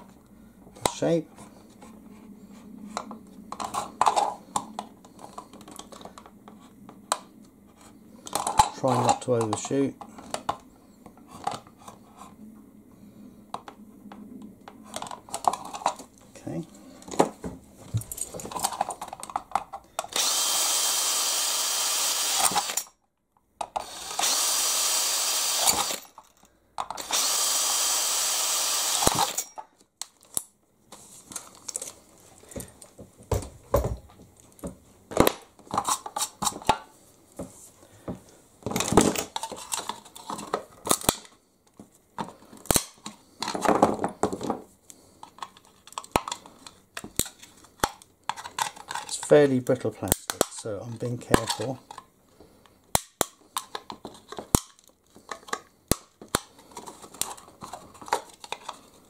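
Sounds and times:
power drill boring through plastic: 0:20.1 - 0:22.9, 0:23.8 - 0:26.1, 0:27.0 - 0:29.5
clicks and scrapes of plastic: 0:38.7 - 0:59.0.

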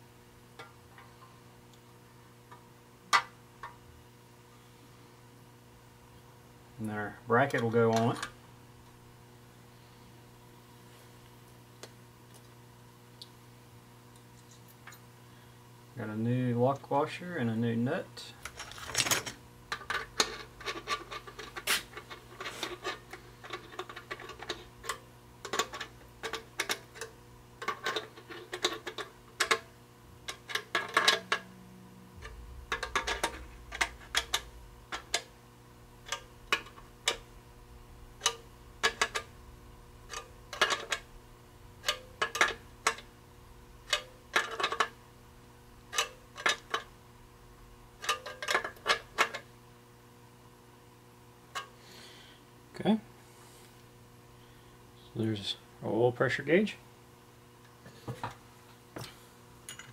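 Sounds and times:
hand ratchet clicking: 0:41.8 - 0:43.0.

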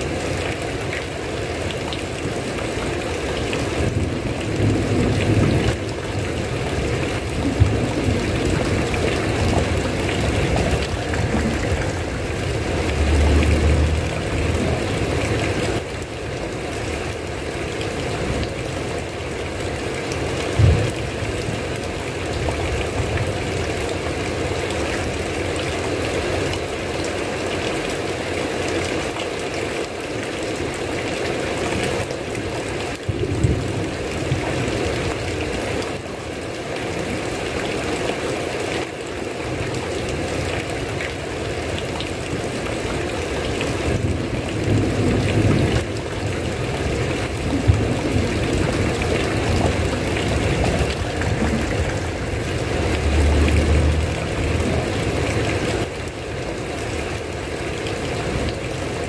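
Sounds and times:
heavy rain: 0:00.0 - 0:59.0
low rumbles: 0:07.4 - 0:15.9, 0:47.5 - 0:55.9.

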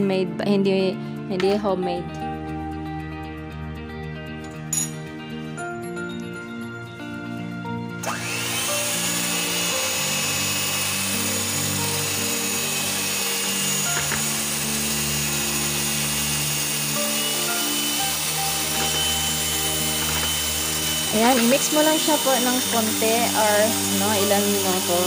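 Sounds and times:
electric hand mixer whisking: 0:08.0 - 0:25.0.

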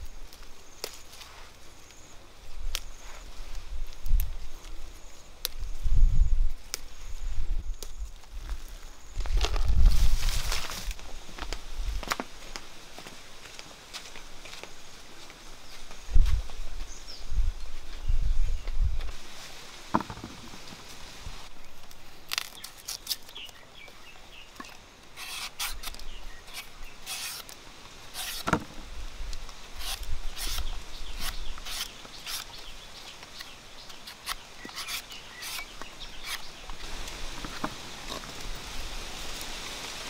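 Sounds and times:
knife scraping mango skin: 0:22.3 - 0:23.4, 0:25.2 - 0:28.6, 0:29.8 - 0:32.6, 0:33.4 - 0:36.5.

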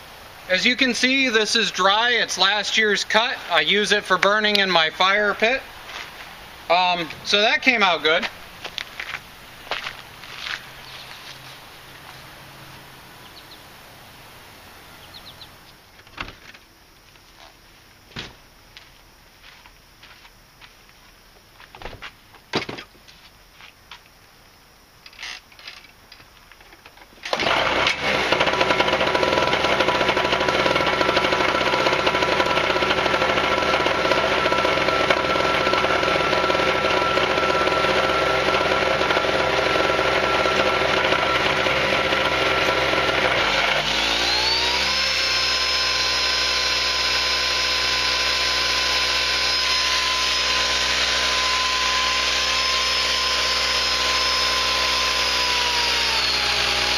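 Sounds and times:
generator engine running: 0:27.3 - 0:56.9.

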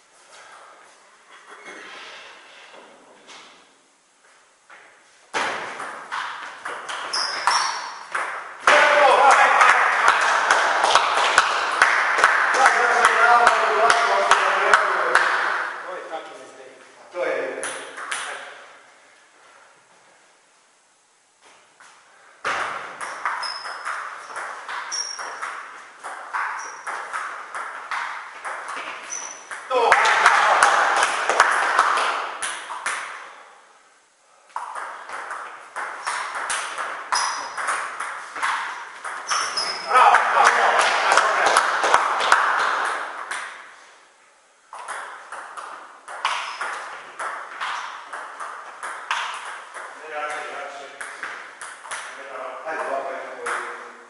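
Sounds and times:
shoes squeaking on floor: 0:06.8 - 0:08.1, 0:23.0 - 0:27.1, 0:28.8 - 0:29.6, 0:37.1 - 0:37.6, 0:38.2 - 0:40.1, 0:46.2 - 0:47.0.

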